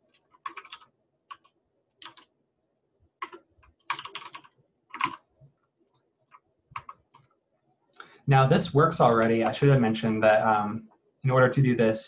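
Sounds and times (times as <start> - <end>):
computer keyboard typing: 0.1 - 2.3, 3.2 - 5.3, 5.9 - 7.3.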